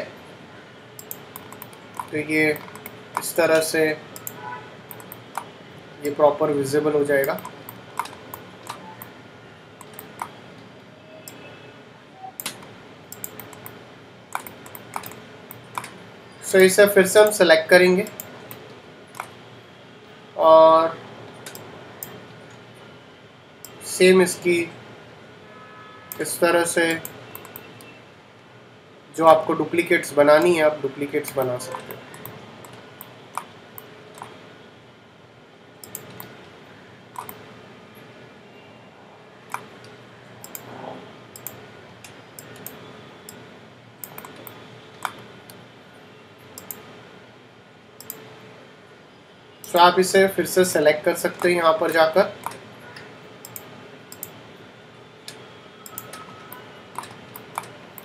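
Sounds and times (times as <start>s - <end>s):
mouse and keyboard clicks: 1.0s - 3.4s, 4.2s - 5.5s, 7.2s - 9.1s, 9.8s - 10.4s, 12.4s - 16.0s, 27.3s - 27.9s, 31.3s - 33.5s, 37.2s - 37.4s, 39.5s - 40.7s, 44.0s - 45.6s, 51.4s - 54.4s, 55.3s - 58.0s.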